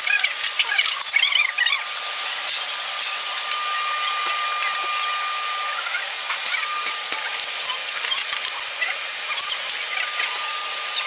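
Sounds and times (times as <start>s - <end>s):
thin high whine: 1.1s - 7.8s.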